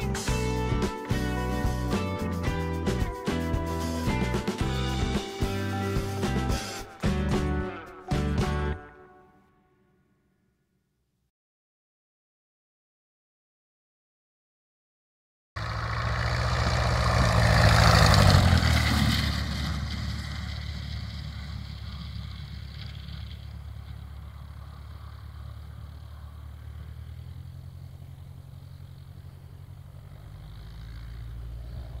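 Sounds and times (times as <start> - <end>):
light aircraft engine and propeller: 0.0 - 8.5, 15.6 - 32.0.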